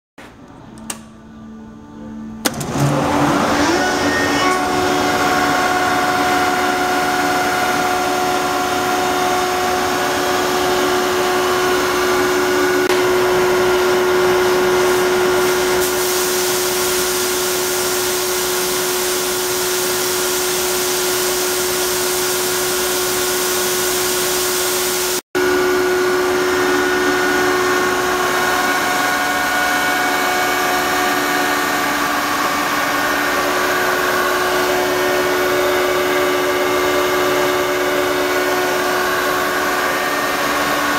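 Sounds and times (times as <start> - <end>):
air compressor motor running: 2.4 - 40.9
hiss of air: 15.4 - 18.3.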